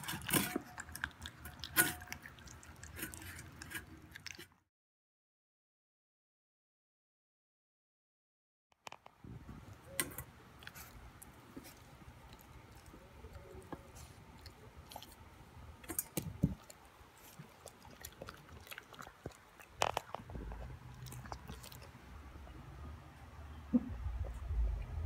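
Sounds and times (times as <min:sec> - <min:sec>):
puppy chewing broccoli: 0:00.0 - 0:04.6, 0:09.6 - 0:23.1.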